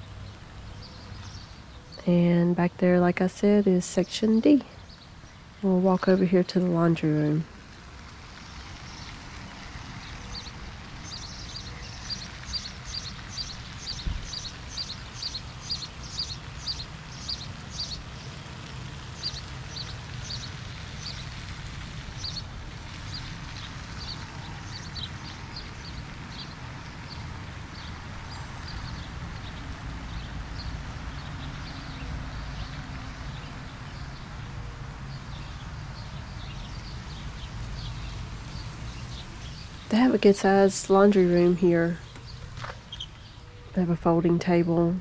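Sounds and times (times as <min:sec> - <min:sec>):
songbird chirping: 0:00.0 - 0:07.9, 0:38.5 - 0:45.0
low steady rumble: 0:38.3 - 0:45.0.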